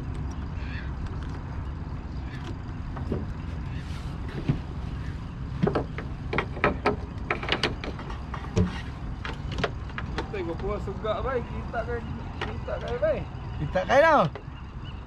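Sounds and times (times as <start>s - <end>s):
sharp clicks and knocks: 5.6s - 10.8s.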